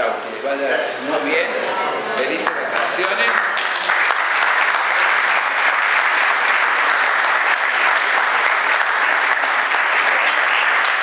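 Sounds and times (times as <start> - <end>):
audience applauding: 2.4 - 11.0.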